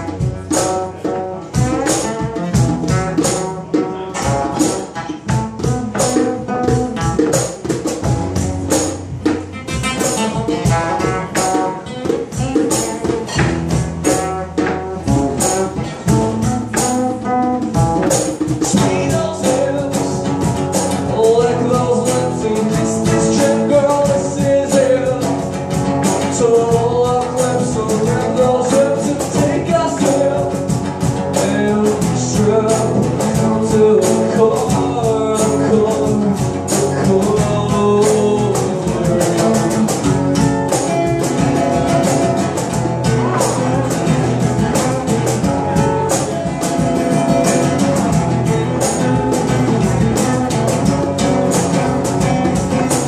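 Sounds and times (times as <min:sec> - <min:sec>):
acoustic guitar strumming: 0:00.0 - 0:53.0
person singing: 0:18.6 - 0:30.7, 0:31.3 - 0:40.1, 0:43.0 - 0:46.6.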